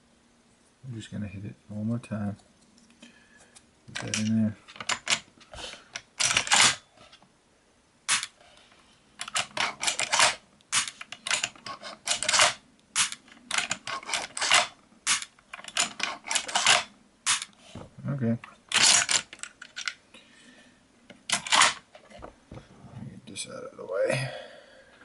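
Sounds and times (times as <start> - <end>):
shotgun action metallic clicks: 8.1 - 8.4, 9.2 - 17.5.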